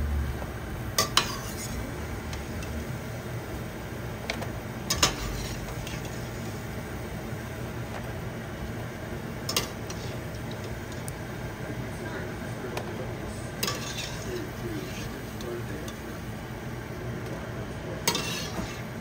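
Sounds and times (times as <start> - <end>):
steady background hiss: 0.0 - 19.0
utensils clinking against pots: 1.0 - 1.8, 4.9 - 6.1, 9.5 - 10.8, 13.6 - 16.1, 18.0 - 18.9.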